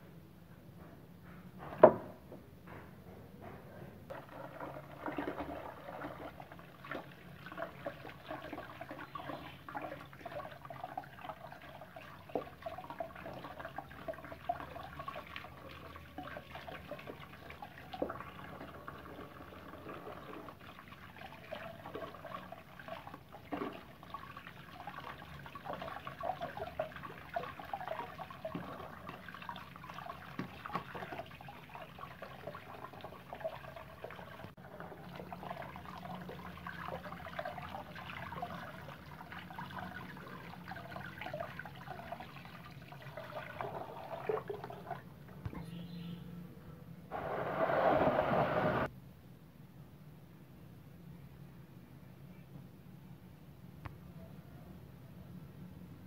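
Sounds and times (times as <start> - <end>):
water splashing in a plastic basin: 4.1 - 45.9.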